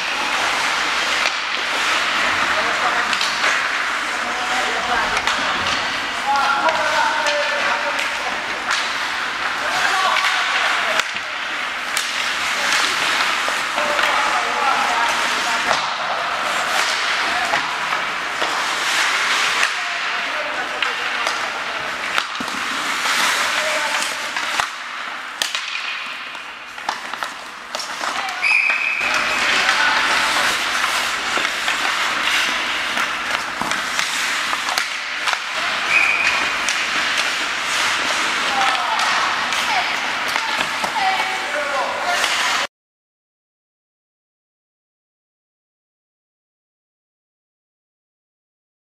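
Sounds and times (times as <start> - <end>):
hockey sticks and puck clacking: 0.0 - 42.7
skates scraping ice: 0.0 - 42.7.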